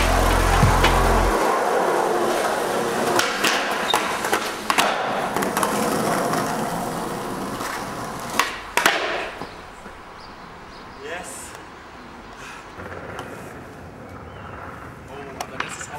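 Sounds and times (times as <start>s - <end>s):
skateboard clacks: 0.0s - 10.0s, 15.4s - 15.9s
skateboard wheels rolling on asphalt: 0.0s - 10.9s, 12.0s - 15.9s.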